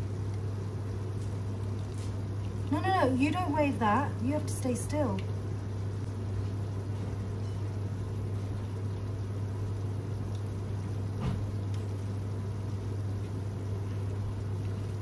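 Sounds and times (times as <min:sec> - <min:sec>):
low kitchen hum: 0:00.0 - 0:15.0.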